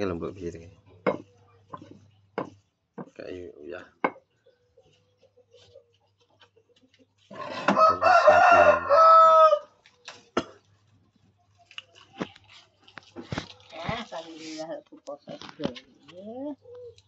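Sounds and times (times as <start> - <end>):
rooster crowing: 7.6 - 9.8.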